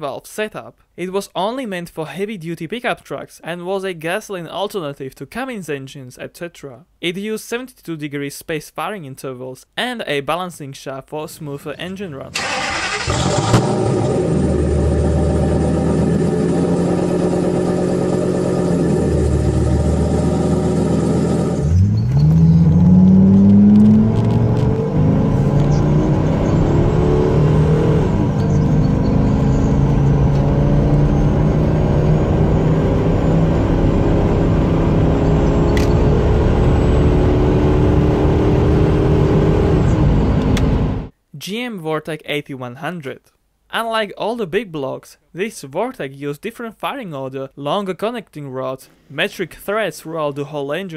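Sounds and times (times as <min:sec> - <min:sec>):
truck engine running: 0:12.4 - 0:24.1
engine accelerating hard: 0:12.4 - 0:41.1.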